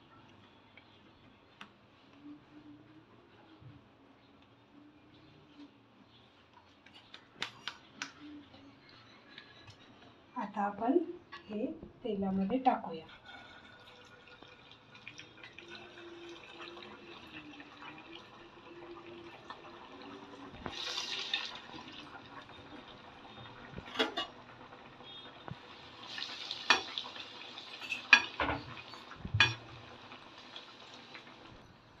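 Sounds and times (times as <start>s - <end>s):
food deep-frying in oil: 12.6s - 32.0s
metal spoon clinking on pan: 27.8s - 28.4s.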